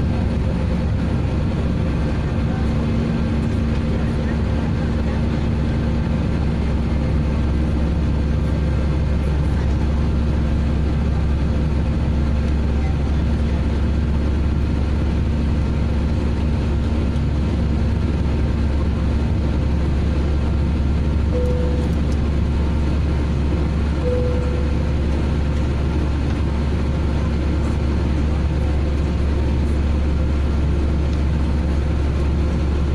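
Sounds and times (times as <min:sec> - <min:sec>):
deep rumble: 0:00.0 - 0:32.9
jet engines roaring in cabin: 0:00.0 - 0:32.9
brief cabin tones: 0:21.4 - 0:22.2, 0:24.0 - 0:24.9.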